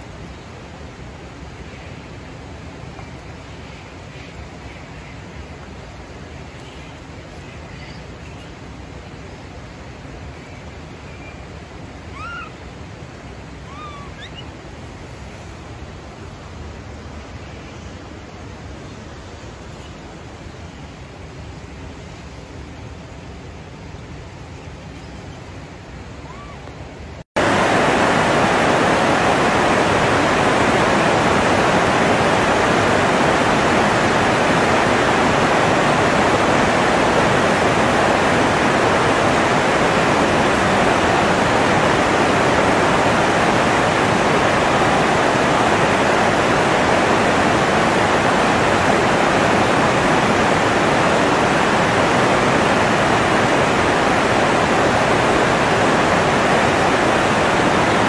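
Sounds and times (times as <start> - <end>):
fast-flowing river water rushing: 27.4 - 58.0.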